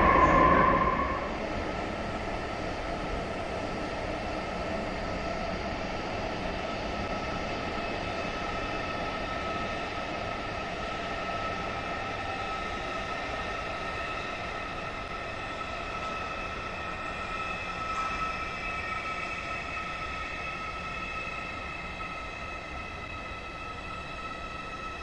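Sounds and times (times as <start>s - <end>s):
train electric hum and whine: 0.0s - 25.0s.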